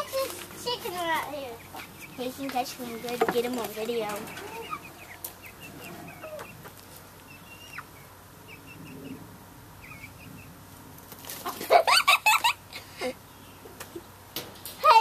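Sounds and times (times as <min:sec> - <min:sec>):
hens clucking: 0:00.0 - 0:15.0
hens squawking loudly: 0:04.3 - 0:06.8.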